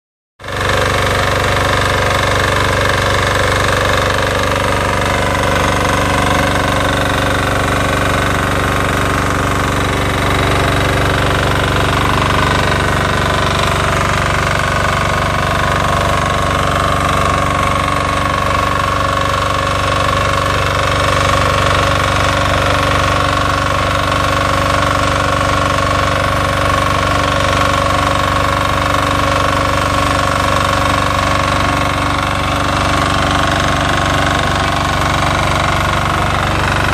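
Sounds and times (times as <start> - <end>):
diesel tiller running: 0.4 - 36.9.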